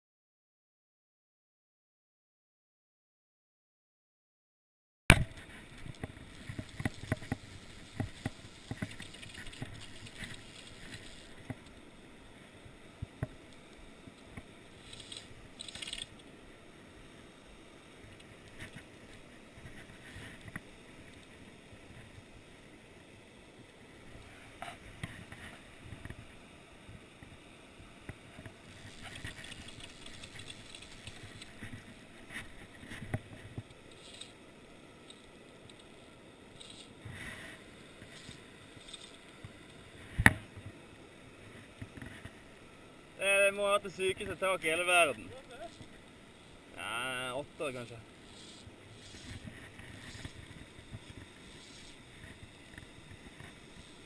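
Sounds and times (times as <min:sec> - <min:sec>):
hands rubbing rod handle: 0:48.2 - 0:52.3.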